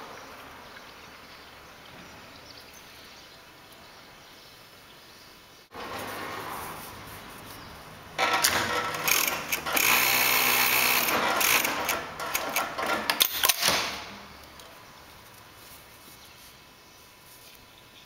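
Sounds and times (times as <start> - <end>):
sewing machine stitching: 8.2 - 13.6
sharp machine clicks: 8.2 - 14.1.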